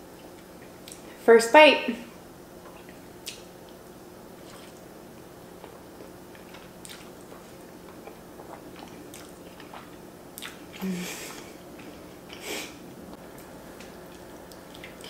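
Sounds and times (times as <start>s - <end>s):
lip and tongue clicks: 2.6s - 3.5s
wet chewing mouth sounds: 2.6s - 3.8s, 4.4s - 4.9s, 5.5s - 12.4s, 13.4s - 15.0s.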